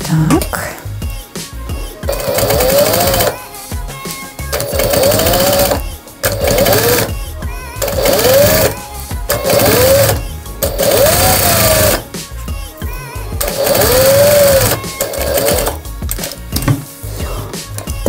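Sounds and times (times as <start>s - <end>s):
sewing machine stitching: 2.1s - 3.4s, 4.6s - 7.1s, 7.8s - 12.0s, 13.4s - 15.8s.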